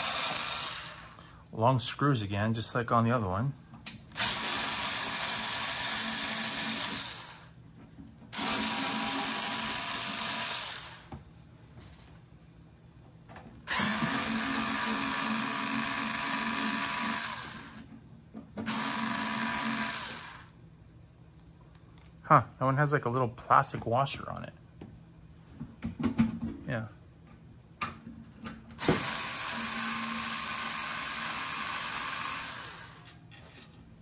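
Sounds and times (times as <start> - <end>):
electric screwdriver motor whine: 0.0 - 1.2, 4.2 - 7.5, 8.4 - 11.1, 13.7 - 17.8, 18.7 - 20.5, 28.8 - 33.1.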